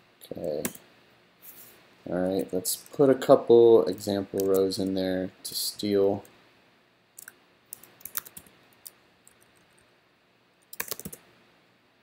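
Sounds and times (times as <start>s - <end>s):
keyboard typing: 3.9s - 4.7s, 7.2s - 9.8s, 10.6s - 11.2s.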